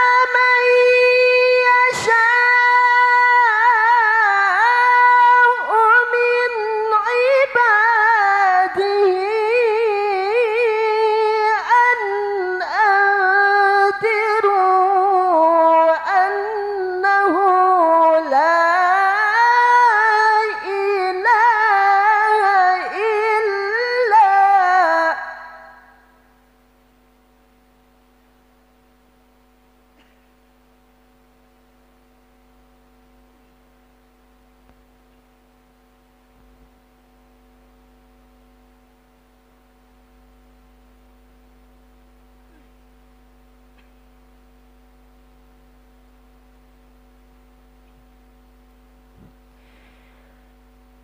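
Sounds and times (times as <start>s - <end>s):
breaths: 49.5s - 50.6s.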